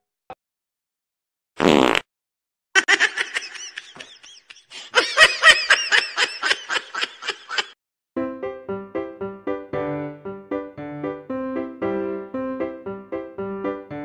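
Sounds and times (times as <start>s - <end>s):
laughter in quick bursts: 2.8s - 7.8s.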